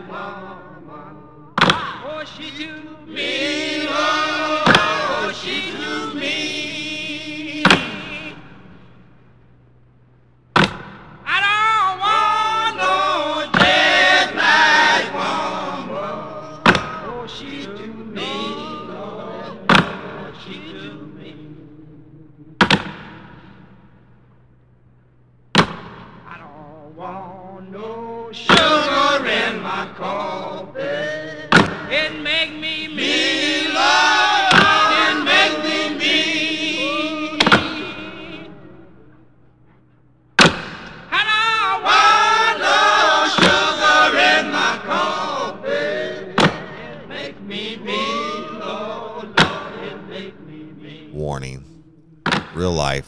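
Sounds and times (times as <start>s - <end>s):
group singing in harmony: 0.0s - 8.4s, 12.0s - 22.0s, 27.0s - 38.8s, 41.5s - 51.6s.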